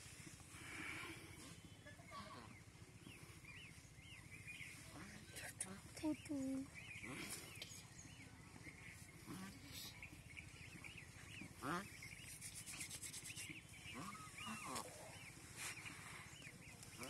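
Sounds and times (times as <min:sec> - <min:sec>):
low background hum: 0:00.0 - 0:17.0
small birds chirping: 0:00.0 - 0:17.0
animal call: 0:12.8 - 0:15.8.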